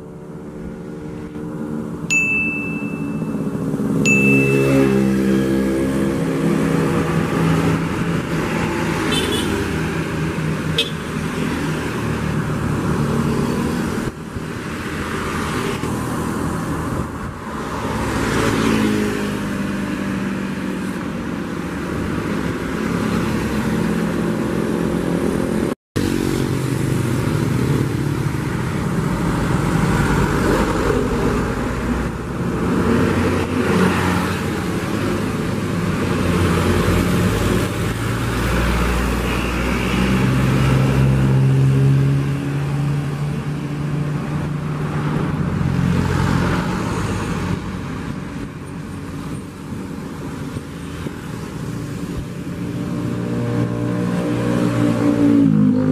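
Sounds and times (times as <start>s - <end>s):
diesel buses passing: 0.0s - 55.9s
motorcycles passing: 0.0s - 55.9s
passing cars: 0.0s - 55.9s.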